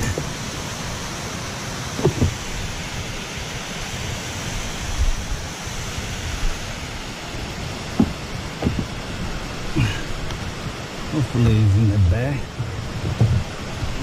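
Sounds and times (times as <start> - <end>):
rushing water's edge noise: 0.0 - 14.0
low knock: 8.0 - 8.9.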